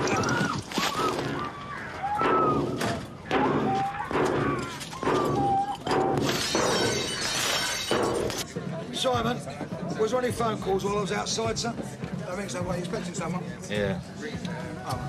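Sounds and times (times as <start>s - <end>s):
people shouting: 0.0s - 7.1s
bar smashing car: 2.2s - 8.4s
glass breaking: 2.2s - 8.4s.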